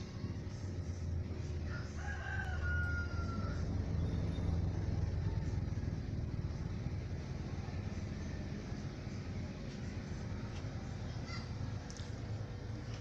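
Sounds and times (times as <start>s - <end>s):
steady low hum: 0.0s - 13.0s
rooster crowing: 1.6s - 3.8s.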